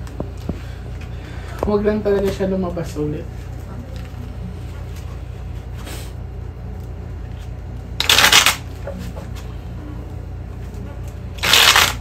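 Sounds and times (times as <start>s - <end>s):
playing cards riffle-shuffled: 7.4s - 8.7s, 11.4s - 12.0s.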